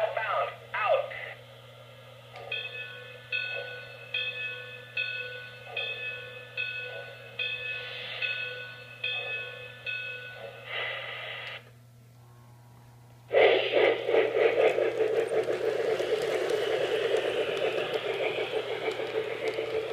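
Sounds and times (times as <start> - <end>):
rhythmic steam chuffing: 0.0 - 19.9
steam hiss: 7.8 - 8.4, 10.6 - 11.6, 13.3 - 19.9.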